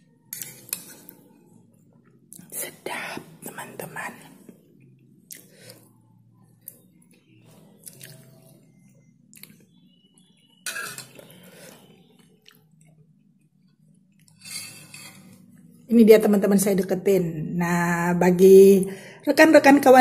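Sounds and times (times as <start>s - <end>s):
faint low hum: 0.0s - 20.0s
person chewing: 7.8s - 8.4s, 9.3s - 9.6s.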